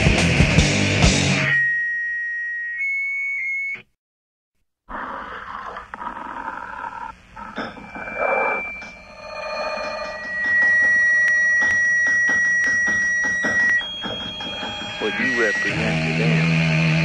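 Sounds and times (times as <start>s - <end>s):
metal band playing distorted guitars: 0.0s - 1.4s, 14.6s - 17.0s
faint steady tones: 7.1s - 17.0s
guitar feedback tone: 7.5s - 17.0s.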